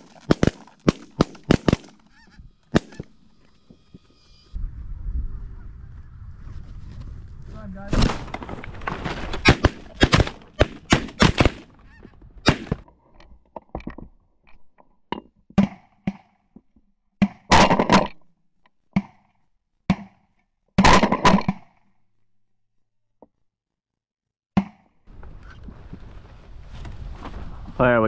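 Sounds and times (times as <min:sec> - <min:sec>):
shotgun shots: 0:00.0 - 0:02.1, 0:02.7 - 0:03.2, 0:09.4 - 0:11.7, 0:12.4 - 0:12.8
geese honking: 0:01.6 - 0:04.6.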